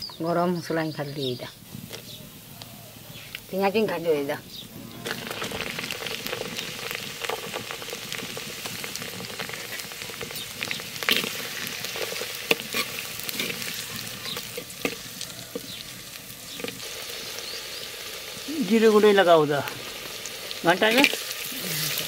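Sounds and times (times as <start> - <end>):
onions sizzling in oil: 0.0 - 22.0
spatula stirring in pot: 9.2 - 15.8.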